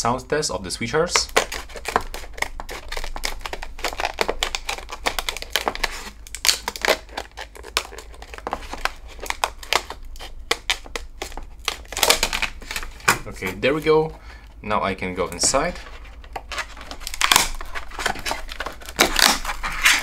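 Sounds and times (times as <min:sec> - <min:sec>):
scissors snipping plastic: 0:01.2 - 0:13.2, 0:16.3 - 0:20.0.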